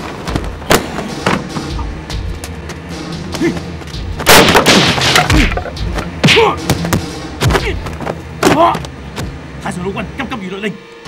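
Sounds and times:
loud crashing blast: 4.3 - 5.3.

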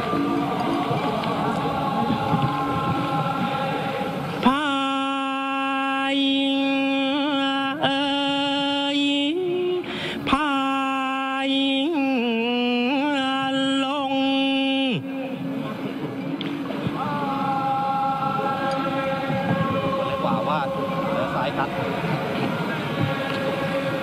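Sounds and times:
person chanting: 0.0 - 15.4, 16.9 - 24.0.

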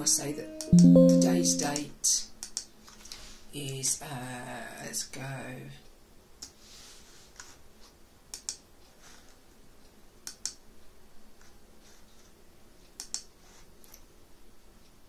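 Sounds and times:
computer mouse clicking: 8.3 - 8.6, 10.2 - 10.6, 13.0 - 13.3.

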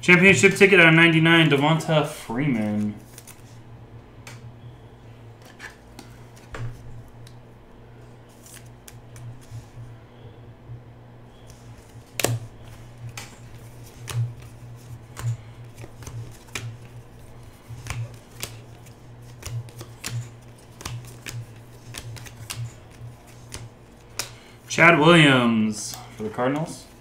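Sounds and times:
trading cards flicking: 2.5 - 3.5, 8.3 - 9.7, 11.3 - 24.6.

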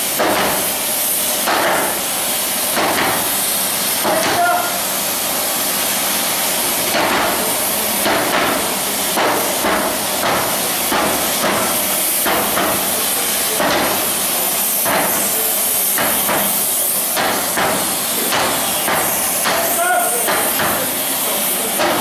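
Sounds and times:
sledgehammer blows on hot steel: 0.0 - 2.1, 2.7 - 4.8, 6.9 - 14.2, 14.8 - 16.6, 17.2 - 20.9
steady hiss: 0.0 - 22.0.

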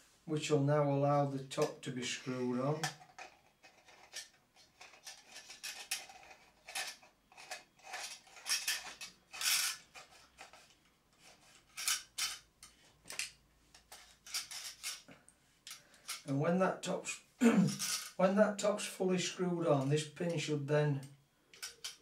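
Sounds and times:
metallic clinks and scrapes: 2.2 - 16.3, 17.7 - 18.2, 21.5 - 22.0.

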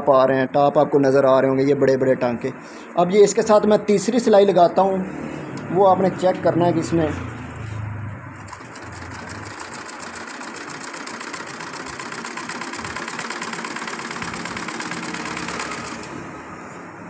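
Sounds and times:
sewing machine stitching: 8.4 - 16.2.

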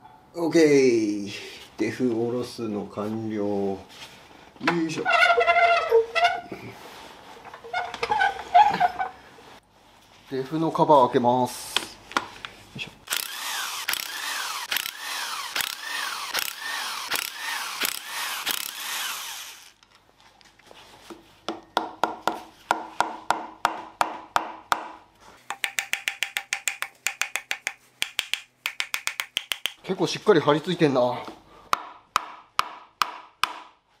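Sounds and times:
hand tool stroking back and forth: 13.1 - 19.8
ratchet clicks: 13.1 - 19.8.

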